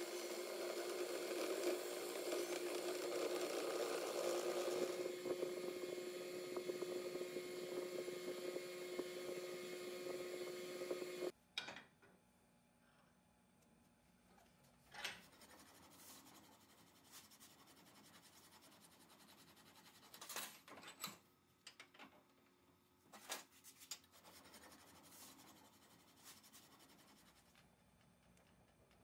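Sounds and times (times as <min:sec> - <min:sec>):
faint scratching and rubbing: 0:14.3 - 0:20.4, 0:23.4 - 0:27.7.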